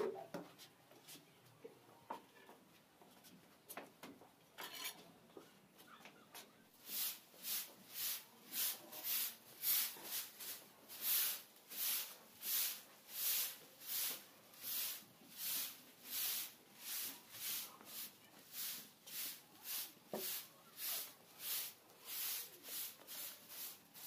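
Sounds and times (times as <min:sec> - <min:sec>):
broom sweeping concrete floor: 0:06.8 - 0:24.0.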